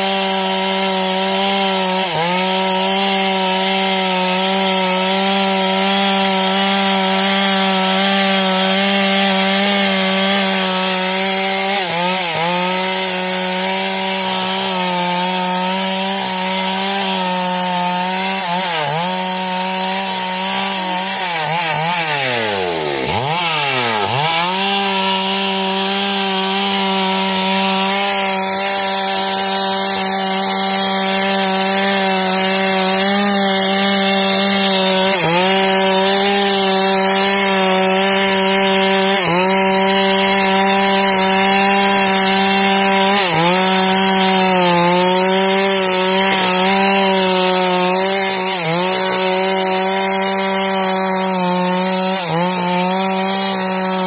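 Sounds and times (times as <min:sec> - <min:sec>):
chainsaw cutting log: 0:00.0 - 0:54.0.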